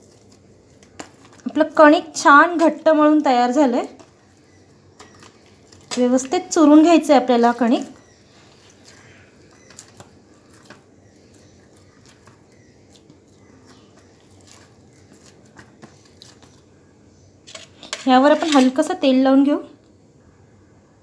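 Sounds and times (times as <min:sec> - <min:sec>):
hands kneading dough: 0:00.0 - 0:16.8.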